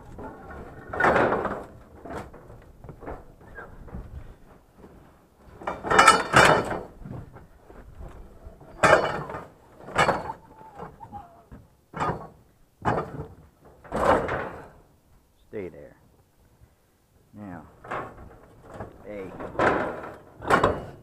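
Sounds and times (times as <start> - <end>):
scrap metal clanking and rattling: 0.0 - 4.0, 5.4 - 7.1, 8.0 - 11.1, 11.9 - 14.9, 17.7 - 21.0.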